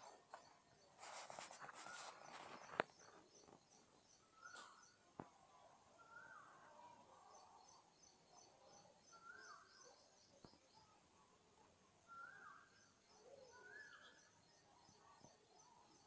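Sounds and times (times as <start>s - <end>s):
distant bird calls: 0.0s - 5.0s
faint high chirping: 0.0s - 16.0s.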